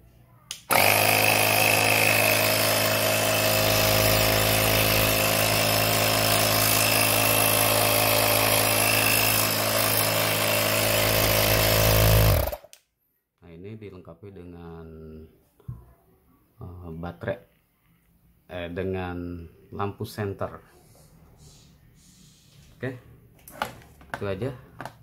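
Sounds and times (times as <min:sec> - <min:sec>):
air compressor running: 0:00.7 - 0:12.7.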